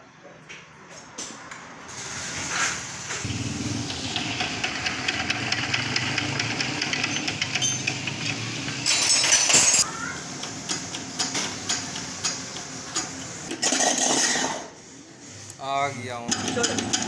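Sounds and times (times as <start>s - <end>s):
diesel engine clatter: 3.2s - 9.4s.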